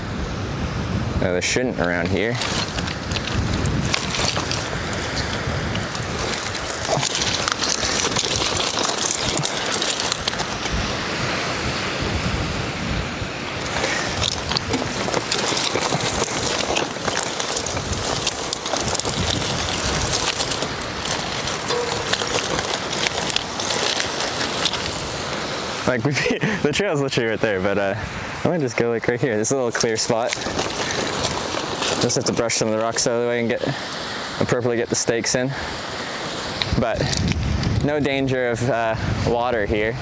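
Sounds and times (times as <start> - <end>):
wind buffeting microphone: 0.0 - 34.4, 35.5 - 40.0
rustling through tall grass: 1.8 - 26.6, 29.5 - 34.4.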